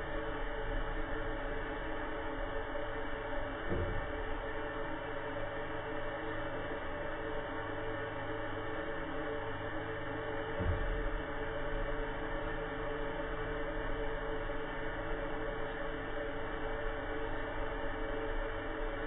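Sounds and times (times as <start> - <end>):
steady hum of sustained tones: 0.0 - 19.0
low thump: 3.7 - 4.2, 10.6 - 11.2.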